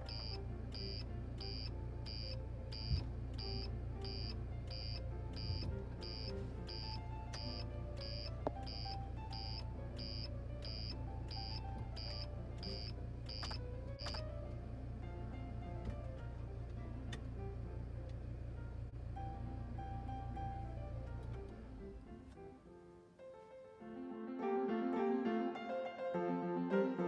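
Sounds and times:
hazard warning beeper: 0.0s - 14.2s
background music: 0.0s - 22.4s.

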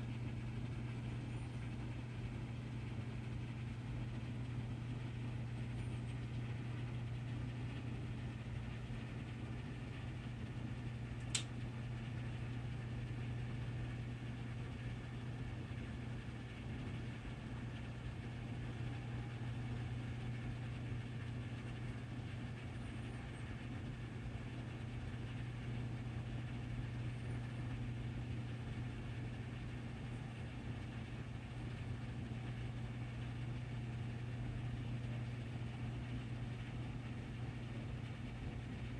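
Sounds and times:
low machinery hum: 0.0s - 38.9s
sharp click: 11.2s - 11.5s.

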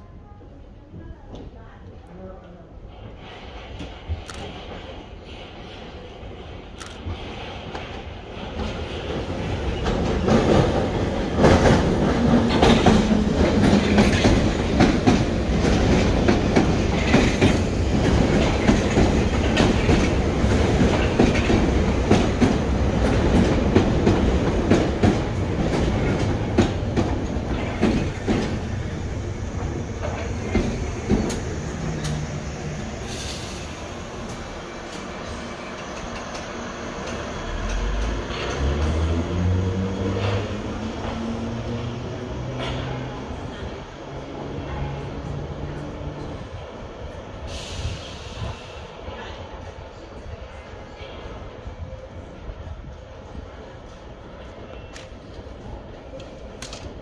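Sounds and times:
train wheels clattering over rails: 3.0s - 43.8s.

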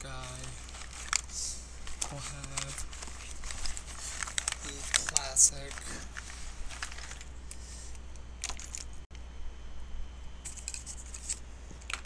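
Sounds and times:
plastic pens clicking and rattling: 0.0s - 7.3s, 8.4s - 8.9s
steady low hum: 0.0s - 12.0s.

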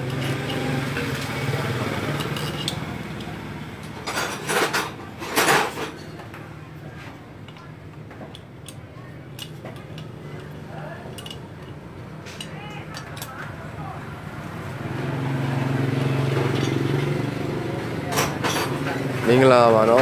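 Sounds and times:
metal tools clinking on metal: 0.0s - 6.2s, 9.4s - 13.4s, 16.3s - 17.2s, 18.1s - 19.1s.

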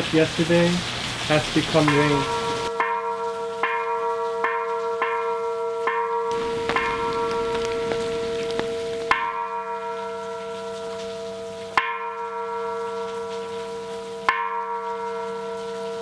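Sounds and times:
bell ringing: 5.9s - 10.2s.

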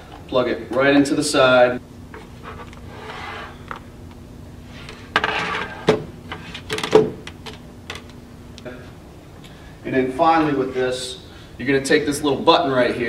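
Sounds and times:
cords rubbing and rustling: 2.1s - 3.9s, 4.6s - 8.1s.

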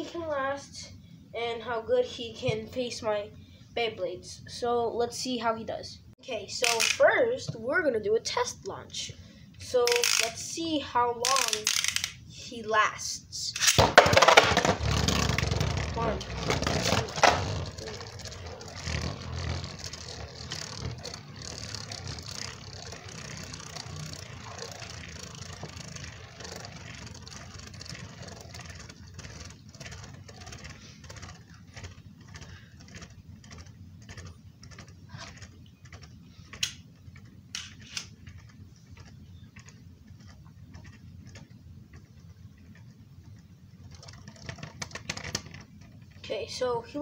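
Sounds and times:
spinning top whirring and rattling: 6.5s - 8.0s, 9.6s - 46.6s
sharp clicks: 11.2s - 12.2s.

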